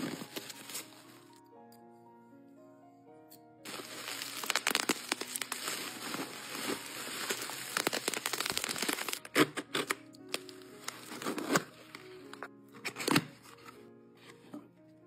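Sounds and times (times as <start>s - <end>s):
bubble wrap crinkling: 0.0s - 1.4s, 3.6s - 13.8s.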